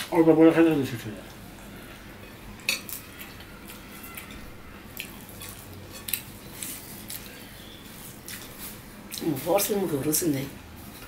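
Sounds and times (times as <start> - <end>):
chewing and lip smacks: 2.8 - 7.3.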